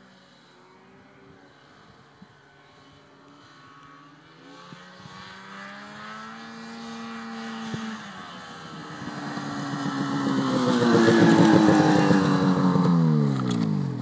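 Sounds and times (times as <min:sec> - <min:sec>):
snowmobile engine approaching: 0:00.0 - 0:14.0.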